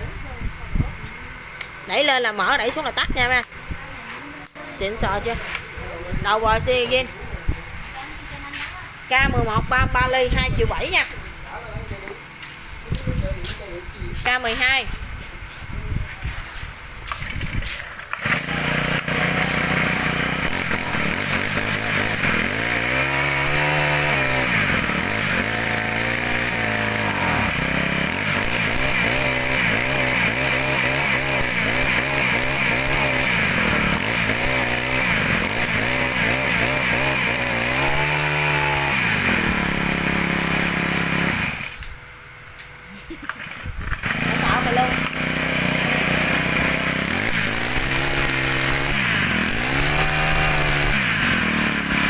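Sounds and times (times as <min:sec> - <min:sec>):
brush cutter engine revving: 0:04.5 - 0:07.1, 0:17.0 - 0:42.0, 0:43.2 - 0:52.0.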